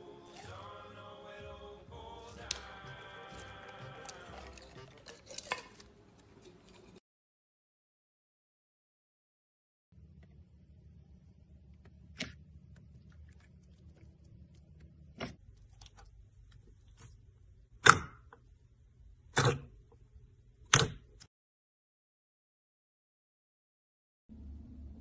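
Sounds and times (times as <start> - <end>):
faint low hum: 10.0 - 17.8, 24.3 - 25.0.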